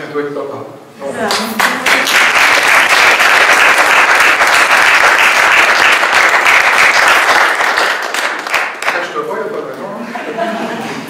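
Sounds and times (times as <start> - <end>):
audience applauding: 1.3 - 9.3.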